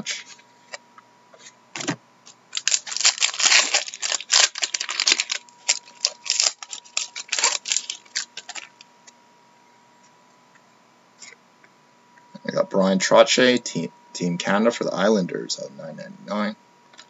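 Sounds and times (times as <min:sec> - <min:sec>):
cards rustling: 0:01.8 - 0:08.8
wrapper torn and crinkled: 0:02.5 - 0:08.8.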